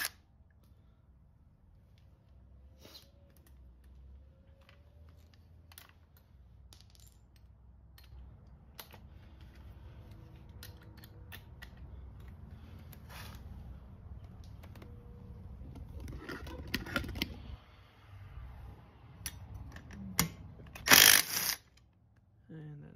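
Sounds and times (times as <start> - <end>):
tools clicking and knocking: 3.3 - 13.0.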